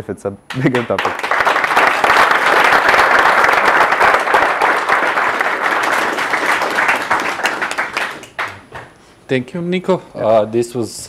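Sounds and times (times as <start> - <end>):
audience clapping: 0.5 - 9.0.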